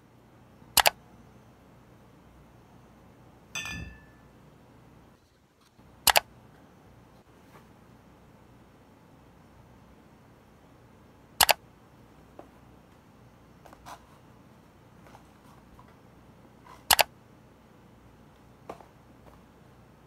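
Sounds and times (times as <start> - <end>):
sharp double clicks: 0.8 - 1.0, 6.0 - 6.3, 11.4 - 11.6, 16.9 - 17.1.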